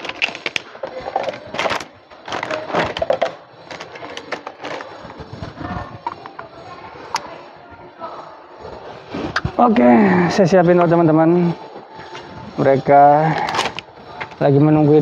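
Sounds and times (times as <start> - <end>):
plastic packet crinkling: 0.0 - 6.4.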